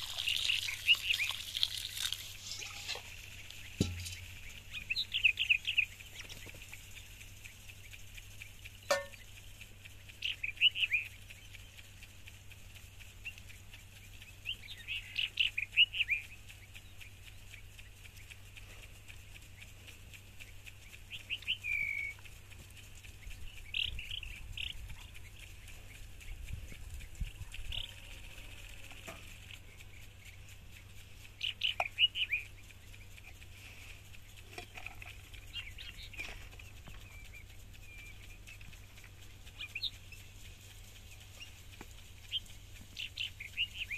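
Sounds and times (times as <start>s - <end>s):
birds chirping: 0.0s - 43.9s
faint steady hum: 0.0s - 43.9s.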